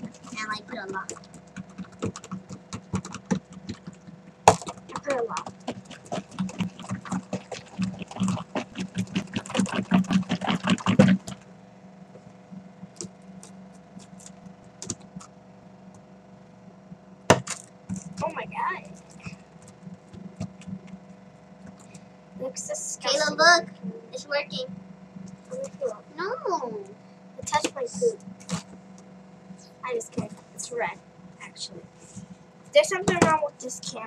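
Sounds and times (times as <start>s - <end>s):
fork stirring slime in tub: 0.0s - 11.5s.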